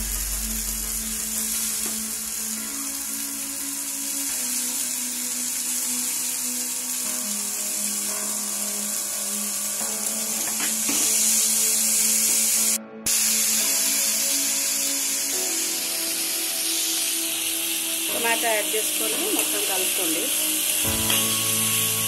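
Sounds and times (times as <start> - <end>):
soft instrumental music: 0.0 - 22.0
vegetables sizzling in hot oil: 0.0 - 22.0.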